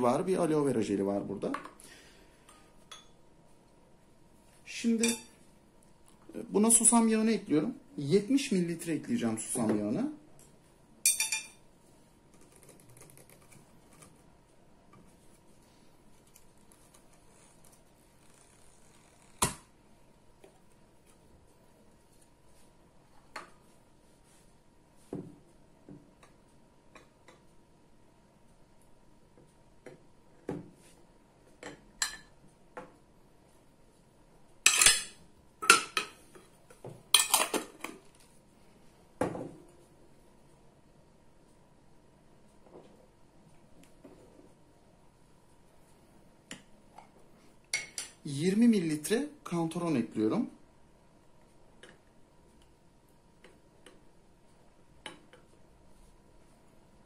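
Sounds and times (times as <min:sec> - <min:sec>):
glass and metal clinks: 0:11.1 - 0:11.6.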